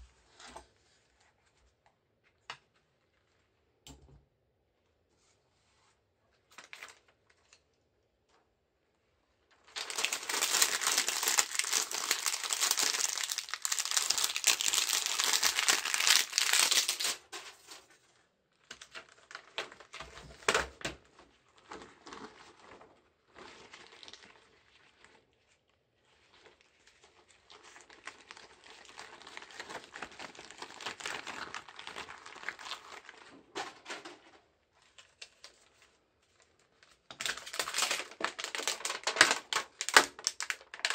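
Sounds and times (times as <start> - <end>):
plastic sheets crinkling: 9.5 - 18.0, 18.7 - 33.9, 34.8 - 40.9.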